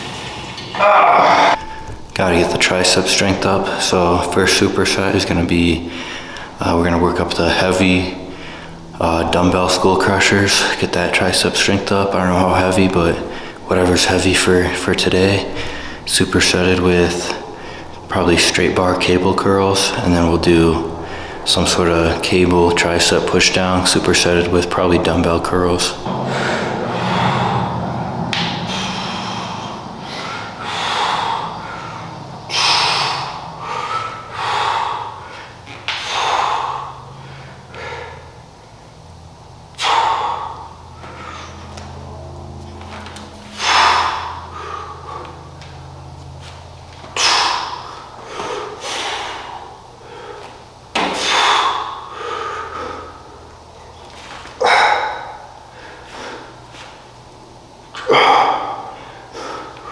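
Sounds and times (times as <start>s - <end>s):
steady low hum: 0.0s - 59.9s
person breathing hard: 5.8s - 6.6s, 8.1s - 9.0s, 13.2s - 13.7s, 15.3s - 16.1s, 17.3s - 18.1s, 20.8s - 21.5s, 26.1s - 38.5s, 39.8s - 42.3s, 43.4s - 45.6s, 47.2s - 50.6s, 51.2s - 53.5s, 54.6s - 56.8s, 58.1s - 59.9s
man exhaling forcefully: 15.5s - 16.1s, 17.4s - 18.0s, 20.9s - 21.4s, 26.1s - 38.4s, 39.7s - 41.6s, 43.5s - 45.4s, 47.2s - 50.5s, 51.1s - 53.4s.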